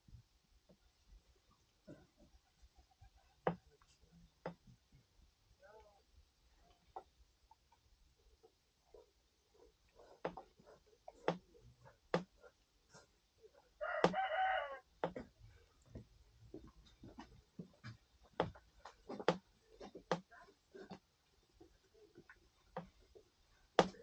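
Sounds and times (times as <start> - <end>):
rooster crowing: 13.8 - 14.9.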